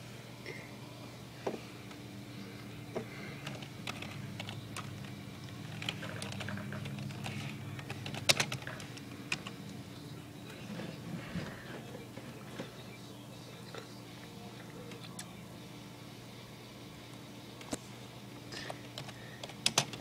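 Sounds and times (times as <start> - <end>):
steady low hum: 0.0 - 20.0
keyboard typing: 3.4 - 9.8, 18.7 - 20.0.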